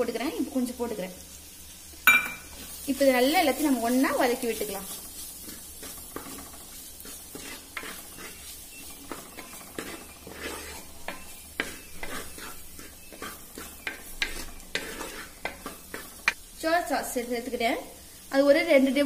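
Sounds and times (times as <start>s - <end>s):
vegetables sizzling in a pan: 0.0s - 19.0s
spatula scraping a pan: 2.4s - 16.4s.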